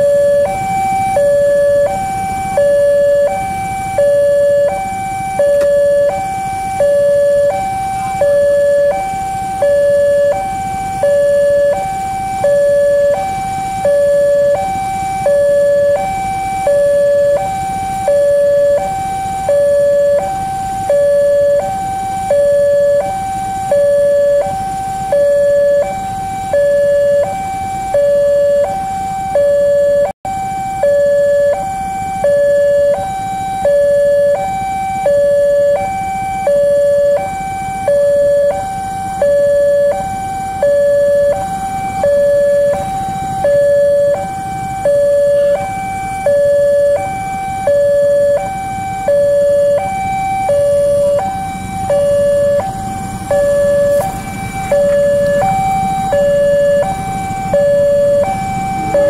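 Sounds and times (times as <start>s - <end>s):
level crossing two-tone alarm: 0.0s - 59.0s.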